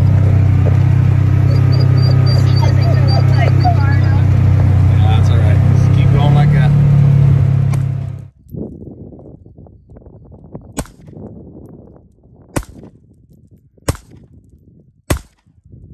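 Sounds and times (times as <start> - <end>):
off-road vehicle engine running: 0.0 - 8.4
handgun shots: 10.8 - 11.1, 12.6 - 12.9, 13.9 - 14.2, 15.1 - 15.5.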